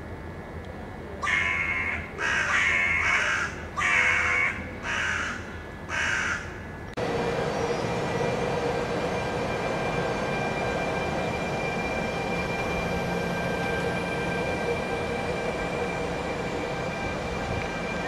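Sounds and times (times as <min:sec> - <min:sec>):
crow cawing: 0:01.2 - 0:06.5
train running noise: 0:06.9 - 0:18.0.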